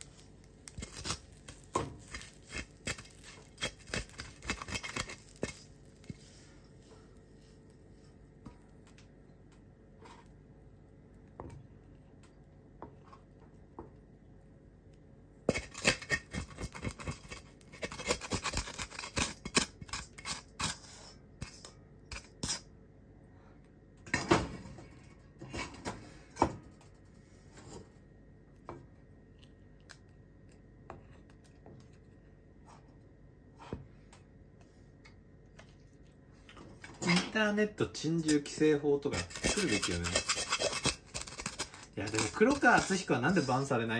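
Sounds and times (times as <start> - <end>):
wooden spatula scraping a wok: 0.0 - 8.1, 15.5 - 22.7, 38.3 - 43.7.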